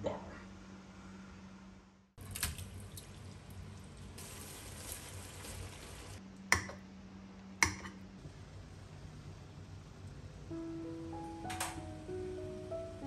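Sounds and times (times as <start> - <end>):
liquid pouring: 2.2 - 6.2.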